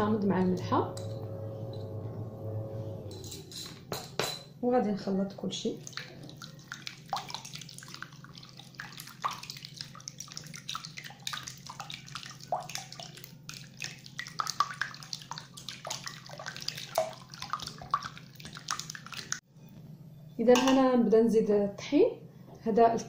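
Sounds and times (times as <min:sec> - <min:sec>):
whisk beating eggs in glass bowl: 0:05.8 - 0:19.4.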